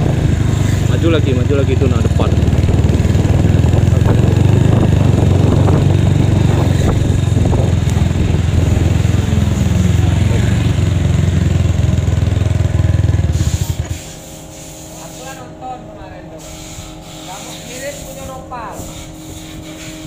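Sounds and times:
scooter engine running: 0.0s - 20.0s.

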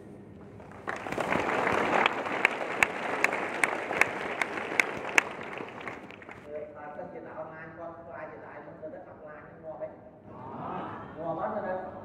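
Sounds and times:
sharp nearby claps: 0.5s - 6.5s
audience applauding: 0.6s - 6.5s.

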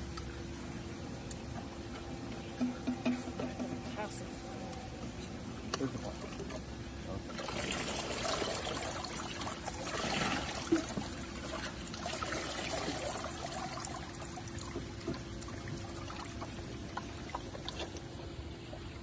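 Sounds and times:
water sloshing in plastic tub: 7.3s - 18.4s.

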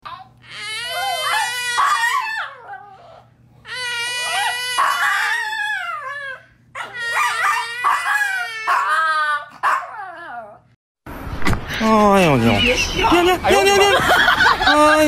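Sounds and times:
small dog howling: 0.0s - 10.7s
toddler squealing and laughing: 0.1s - 9.5s.

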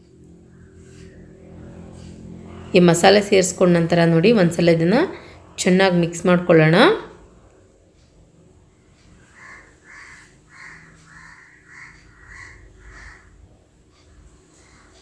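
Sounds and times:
crow cawing: 9.1s - 15.0s.

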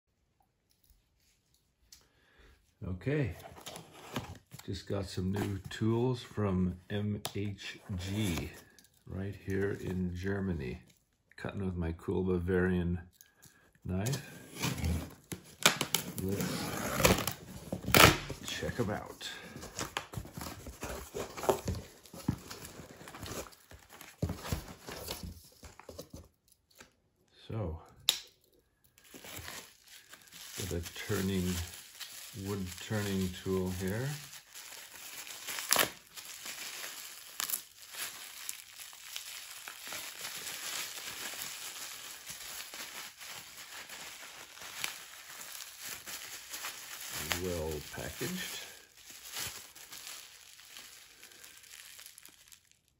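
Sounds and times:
cardboard rustling: 3.2s - 5.8s, 14.0s - 26.4s, 29.0s - 51.1s
plastic and paper crinkling: 7.6s - 10.8s, 13.4s - 26.4s, 28.9s - 52.9s.

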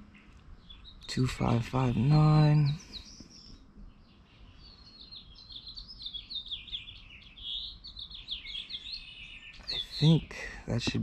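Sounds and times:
songbird chirping: 0.0s - 11.0s.

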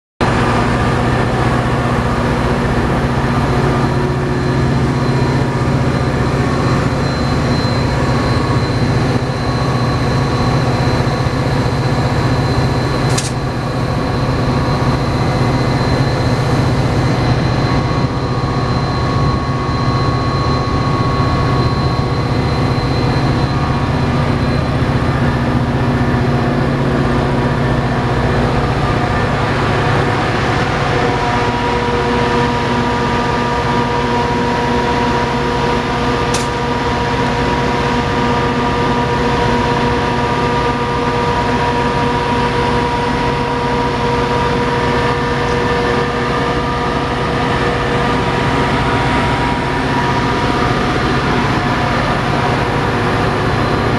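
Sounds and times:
diesel locomotive idling: 0.2s - 53.9s
sharp click: 13.1s - 13.4s, 36.3s - 36.6s.

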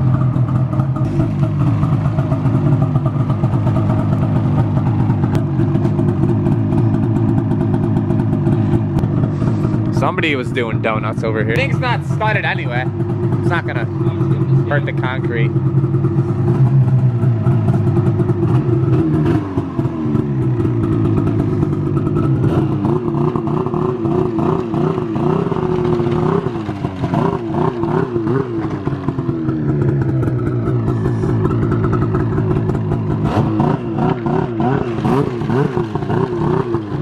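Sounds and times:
snowmobile engine revving: 8.4s - 15.5s, 16.4s - 37.0s.

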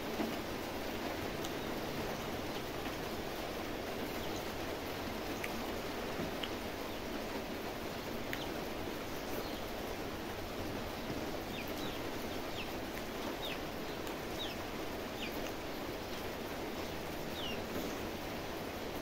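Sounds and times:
background hiss: 0.0s - 19.0s
small bird chirping: 8.3s - 9.7s, 11.4s - 18.1s.

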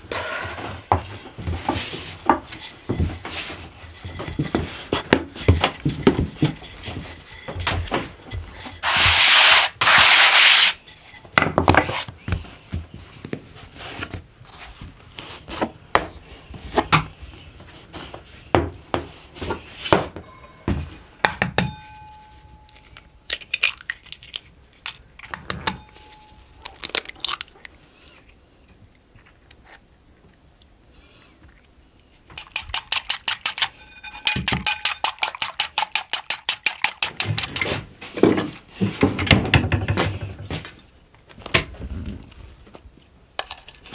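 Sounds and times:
rolling pin rubbing over dough: 8.4s - 10.8s
dishes knocking and clinking: 33.2s - 36.3s.

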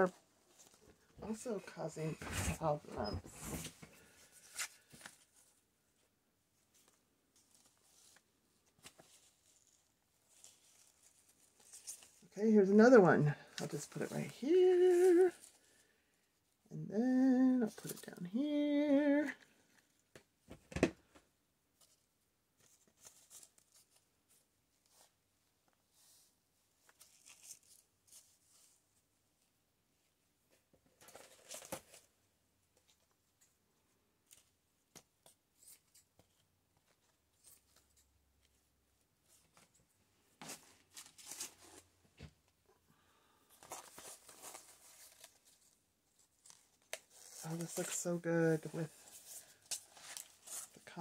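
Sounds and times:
fabric rustling and crinkling: 0.0s - 12.4s, 43.5s - 51.0s
fabric and paper rustling: 0.0s - 16.0s, 21.8s - 29.1s, 32.8s - 51.0s.

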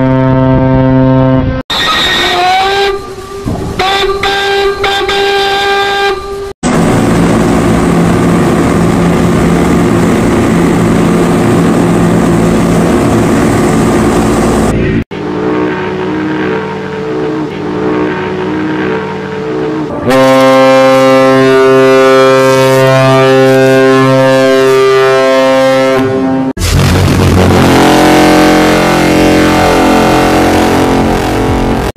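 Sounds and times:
higher-pitched ship whistle: 0.0s - 6.5s, 20.0s - 26.5s, 27.7s - 31.5s
deep ship horn with hiss: 0.0s - 31.9s
rich multi-tone ship horn: 0.0s - 31.9s.

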